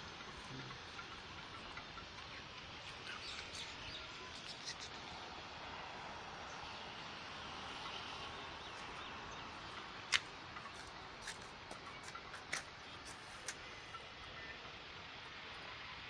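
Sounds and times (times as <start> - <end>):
faint bird chirps: 0.2 - 5.9.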